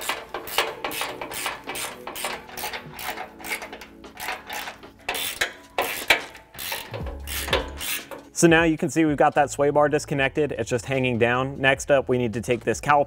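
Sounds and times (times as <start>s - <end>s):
ratchet wrench clicking: 0.0s - 8.4s.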